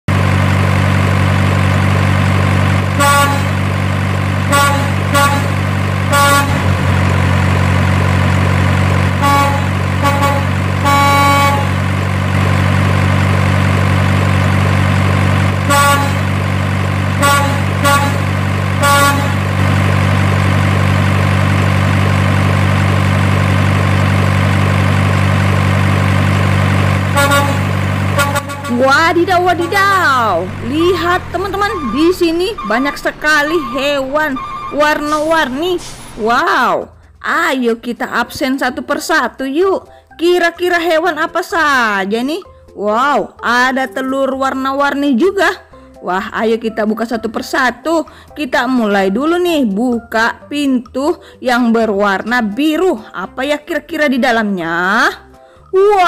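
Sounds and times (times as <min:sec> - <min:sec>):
truck engine drone: 0:00.0 - 0:44.4
horn toots: 0:02.9 - 0:03.7, 0:04.4 - 0:06.8, 0:09.1 - 0:11.8, 0:15.5 - 0:16.4, 0:17.2 - 0:19.7, 0:27.0 - 0:36.2.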